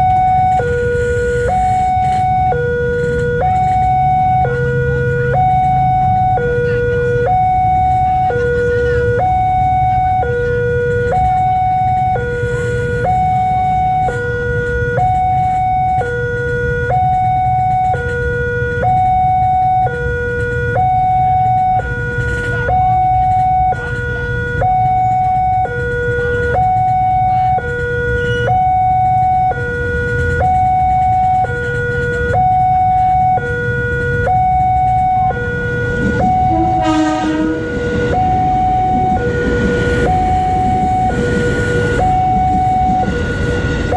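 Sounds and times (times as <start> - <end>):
level crossing alarm tones: 0.0 - 43.9
train horn: 28.1 - 28.6, 35.9 - 38.6.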